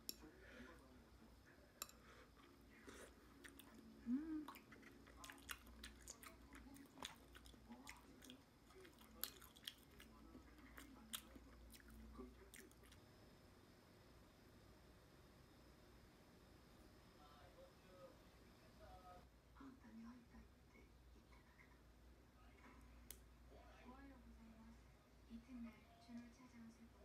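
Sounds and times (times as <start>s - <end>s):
chewing: 1.8s - 13.0s.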